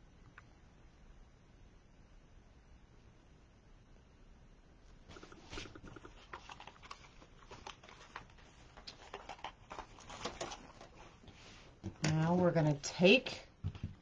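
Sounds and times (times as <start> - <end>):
ribbon rustling: 5.1 - 12.6.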